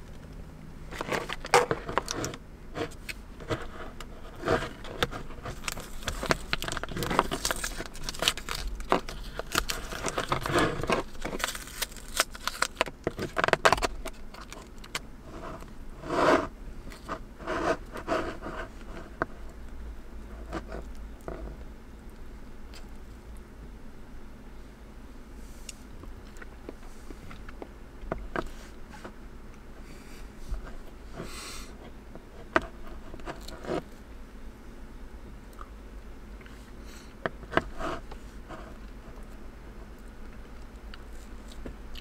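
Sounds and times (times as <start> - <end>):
rustling and crinkling: 0.0 - 21.7, 25.4 - 34.1, 36.4 - 42.0
clicks taps and scrapes of handling: 0.1 - 19.4, 30.5 - 33.9.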